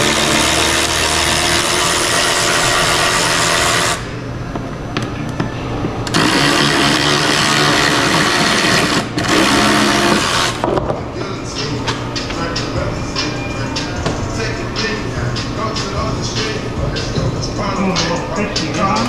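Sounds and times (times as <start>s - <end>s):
handheld power tool running: 0.0s - 4.0s, 6.0s - 10.7s.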